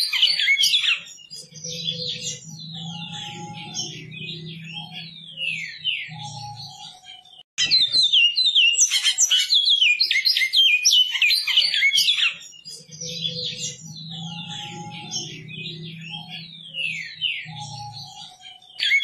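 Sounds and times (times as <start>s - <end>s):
bird singing whistled notes: 0.0s - 19.0s
low hum: 1.6s - 6.6s, 13.0s - 18.1s.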